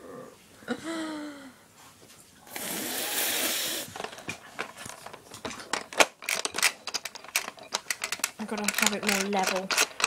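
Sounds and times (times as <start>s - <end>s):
device handling noise: 3.9s - 10.0s
plastic game clicks and rattles: 4.0s - 10.0s.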